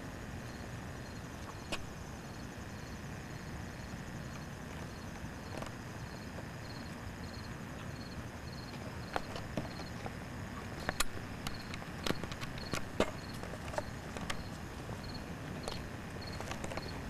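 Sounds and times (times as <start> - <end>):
cricket chirping: 0.0 - 17.0
footsteps outdoors: 4.0 - 17.0.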